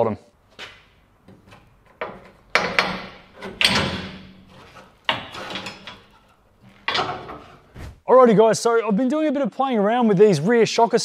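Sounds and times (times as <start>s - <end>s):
metal spring knocks and clunks: 0.6s - 7.8s.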